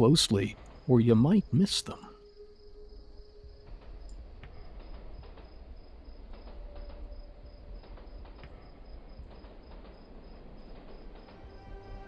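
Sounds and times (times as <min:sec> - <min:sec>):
high cricket-like chirping: 0:00.0 - 0:12.0
model train rumbling: 0:03.6 - 0:12.0
wheels clicking over rail joints: 0:03.6 - 0:12.0.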